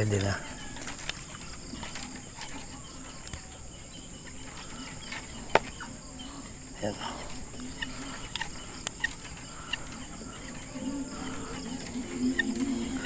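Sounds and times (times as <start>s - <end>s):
high-pitched insect trilling: 0.0s - 13.0s
sharp clicks: 7.5s - 10.7s.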